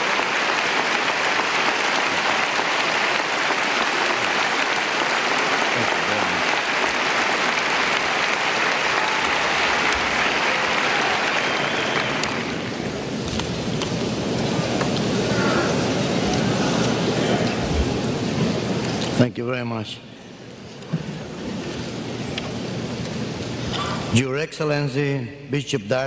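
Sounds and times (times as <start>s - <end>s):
audience applauding: 0.0s - 18.7s.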